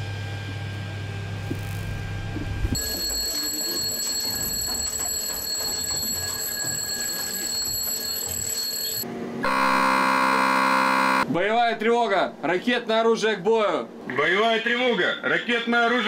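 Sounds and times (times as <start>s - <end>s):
loud buzzing alarm: 2.7s - 11.3s.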